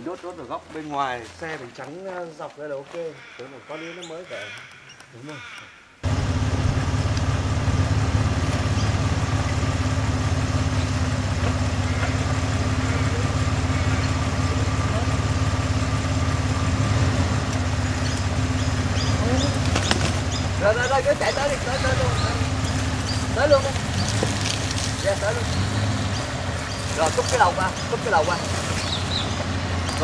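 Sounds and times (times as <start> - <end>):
vehicle engine idling: 6.0 - 30.0.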